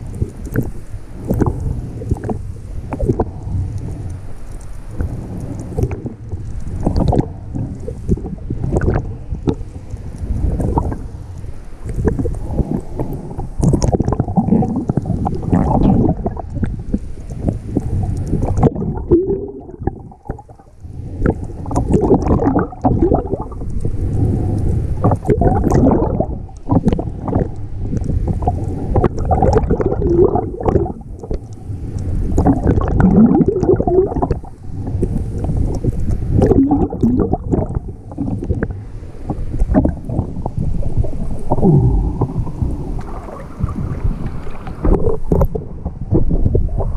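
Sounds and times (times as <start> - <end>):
underwater rumbling and gurgling: 0.0 - 46.9
small clicks: 2.1 - 7.2.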